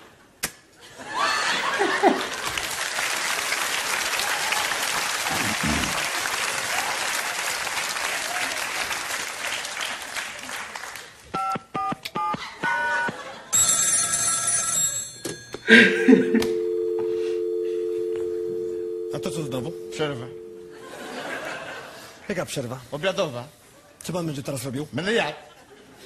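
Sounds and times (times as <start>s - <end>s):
audience applause: 1.5s - 11.2s
telephone keypad beeps: 11.4s - 20.8s
telephone ringing tone: 12.7s - 21.2s.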